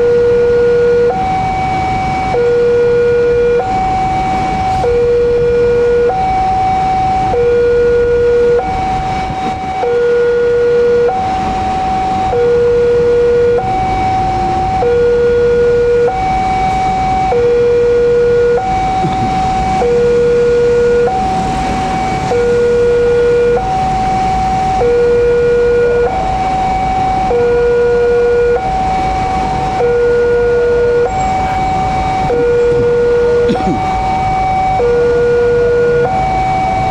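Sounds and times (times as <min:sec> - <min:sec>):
level crossing two-tone alarm: 0:00.0 - 0:36.9.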